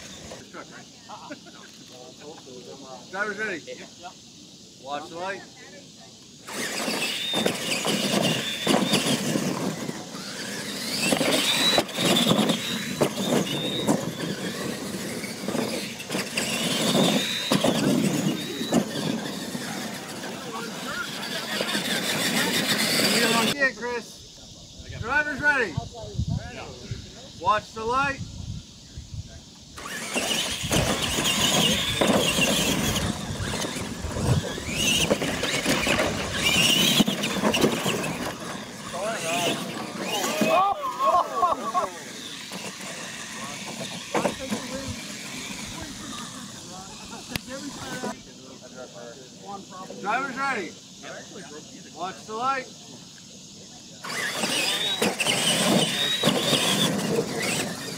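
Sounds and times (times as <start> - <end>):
rough rumble of tyres: 0.0 - 0.6, 6.4 - 23.6, 29.6 - 48.3, 53.9 - 57.9
electric motor whine: 6.4 - 23.6, 29.7 - 48.3, 54.0 - 57.9
trucks landing thumps: 6.5 - 20.4, 29.8 - 40.6, 54.1 - 57.9.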